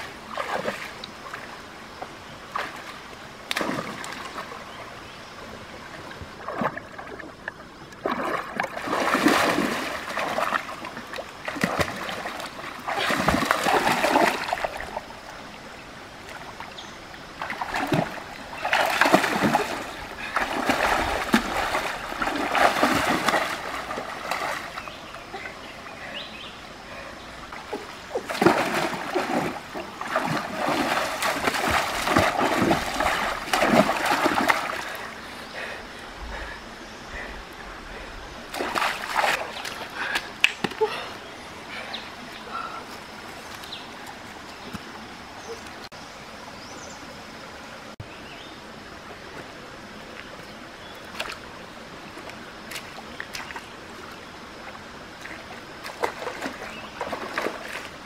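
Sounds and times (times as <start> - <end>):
person splashing in stream: 0.0 - 1.5, 2.5 - 4.6, 6.4 - 15.1, 17.4 - 25.6, 27.5 - 35.2, 38.5 - 41.0, 51.1 - 58.0
stream trickling: 0.0 - 58.0.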